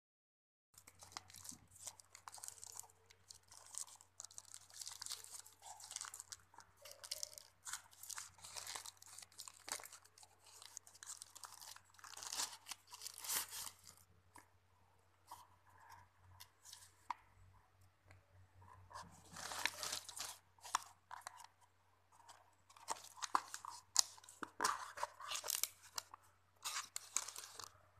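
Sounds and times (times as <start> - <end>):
plastic pouch crinkling: 0.8 - 14.1, 19.2 - 21.5, 22.7 - 27.7.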